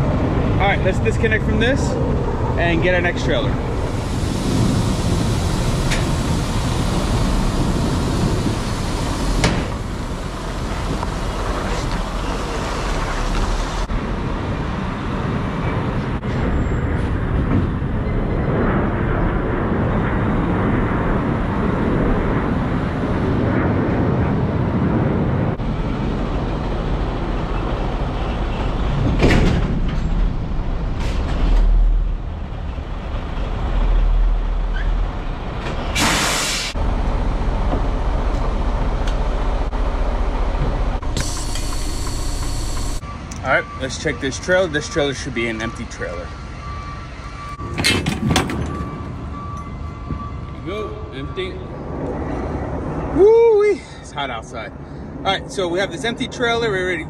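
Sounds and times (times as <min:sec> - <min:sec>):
truck engine running: 0:00.0 - 0:13.9, 0:36.7 - 0:45.0.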